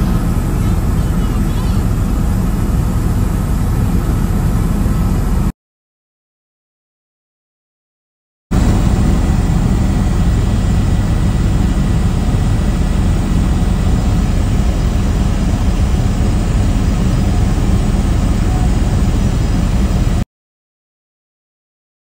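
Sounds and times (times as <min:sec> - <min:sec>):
helicopter engine and rotor: 0:00.0 - 0:05.5, 0:08.5 - 0:20.2.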